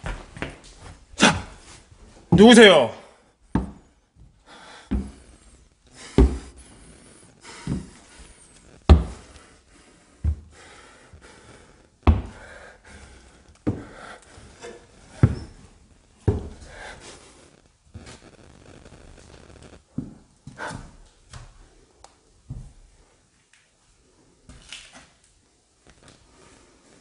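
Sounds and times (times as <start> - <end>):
heavy footsteps on wooden stairs: 3.5 - 6.8, 7.4 - 17.0.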